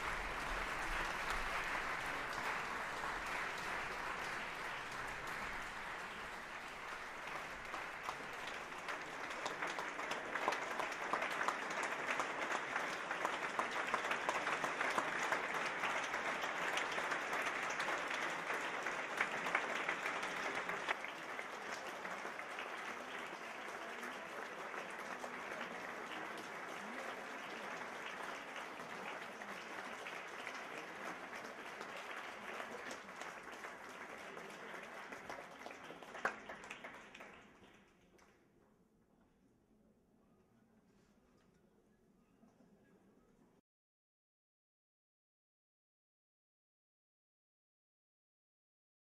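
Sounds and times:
audience applauding: 0:00.0 - 0:38.4.

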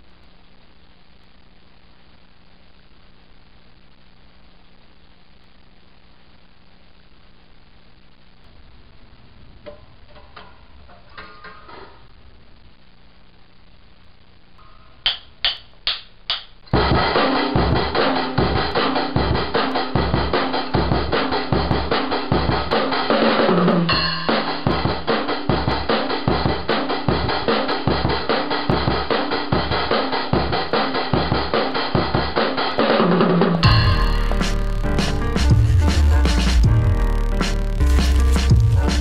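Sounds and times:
drum kit playing a beat: 0:15.0 - 0:39.0.

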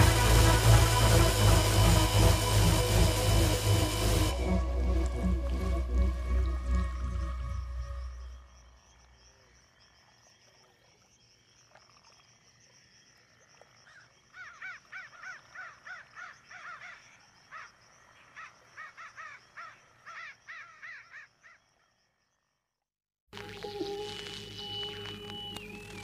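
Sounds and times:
faint high hum: 0:00.0 - 0:08.5.

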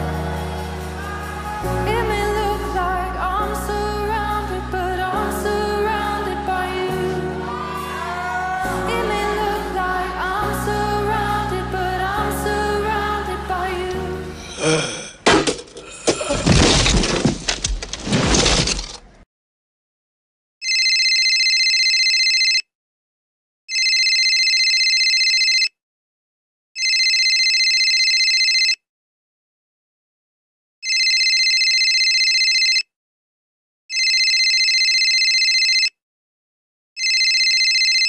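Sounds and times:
phone ringtone: 0:20.6 - 0:22.6, 0:23.7 - 0:25.7, 0:26.8 - 0:28.8, 0:30.8 - 0:32.9, 0:33.9 - 0:36.0, 0:37.0 - 0:38.0.

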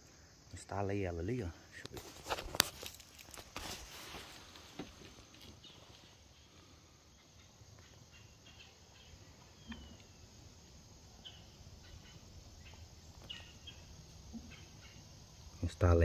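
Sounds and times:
faint bird chirps: 0:04.9 - 0:16.0.

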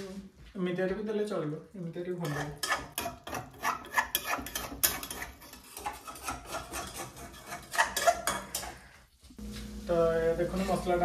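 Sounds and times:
metal spatula scraping a pan: 0:02.2 - 0:08.9.

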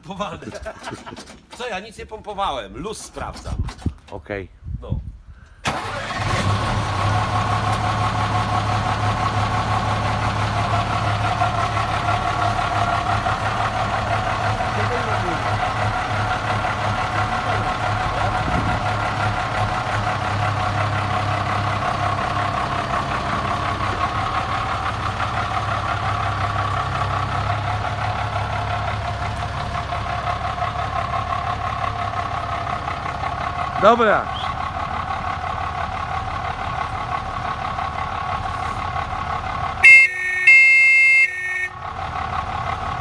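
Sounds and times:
diesel truck engine idling: 0:05.6 - 0:43.0.

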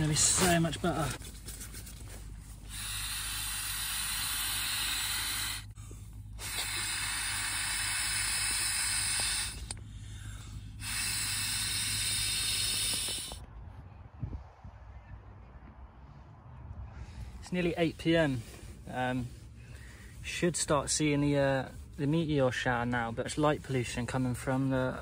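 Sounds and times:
steady hiss bursts: 0:02.6 - 0:05.8, 0:06.4 - 0:09.7, 0:10.7 - 0:13.4.

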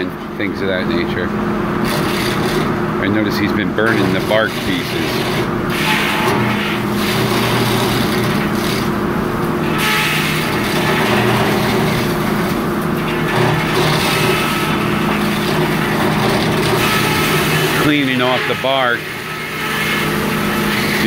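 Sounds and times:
sawmill machinery running: 0:00.0 - 0:21.0.

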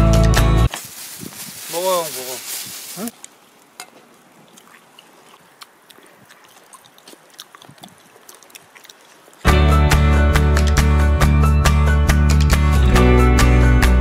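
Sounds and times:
mouth noises while eating: 0:04.4 - 0:09.5.

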